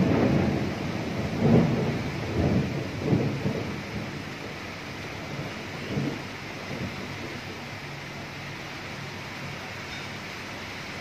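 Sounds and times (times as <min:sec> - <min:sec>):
rolling thunder: 0:00.0 - 0:08.2
rain hiss: 0:00.0 - 0:11.0.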